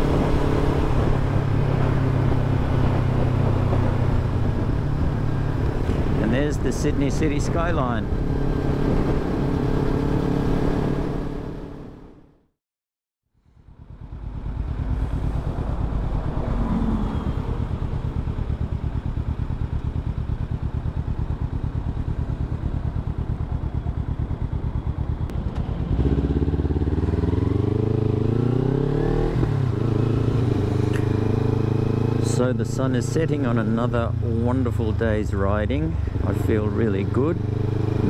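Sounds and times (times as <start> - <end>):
motorcycle engine running: 13.4 - 38.0.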